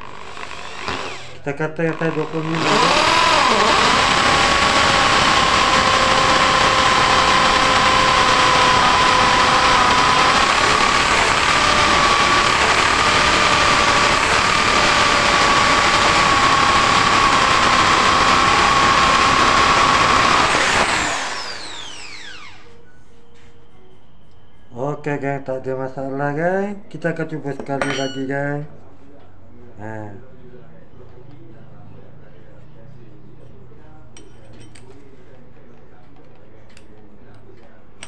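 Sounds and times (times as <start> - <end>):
drill boring into wood: 0.0 - 22.7.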